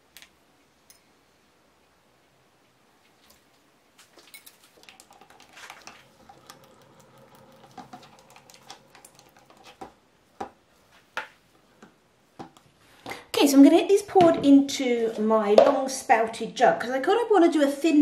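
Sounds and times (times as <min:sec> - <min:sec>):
spatula scraping plastic jug: 0:04.8 - 0:10.0.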